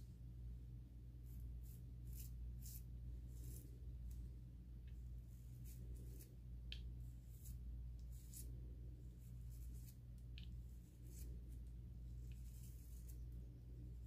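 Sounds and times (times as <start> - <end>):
steady low hum: 0.0 - 14.0
toothbrush bristles brushing hair: 1.6 - 3.8, 5.5 - 8.5, 9.4 - 11.6, 12.2 - 13.4.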